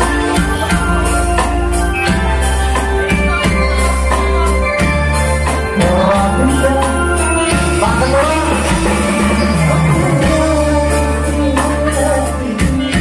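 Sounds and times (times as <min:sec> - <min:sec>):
bass line: 0:00.0 - 0:13.0
electronic keyboard: 0:00.0 - 0:13.0
man singing into a microphone: 0:05.6 - 0:13.0.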